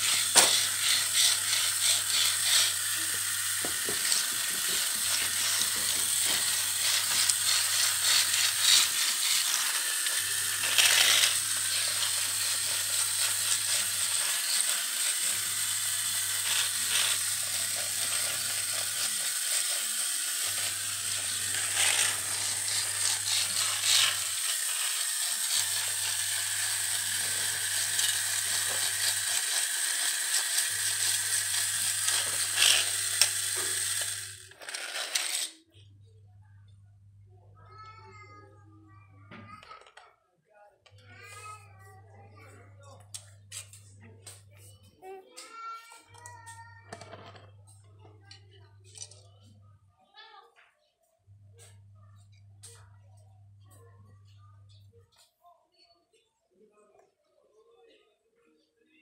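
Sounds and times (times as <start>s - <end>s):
rattling ratchet-like clatter: 0.0s - 35.6s
toy motor whirring: 0.0s - 35.8s, 39.3s - 40.1s, 42.8s - 49.6s.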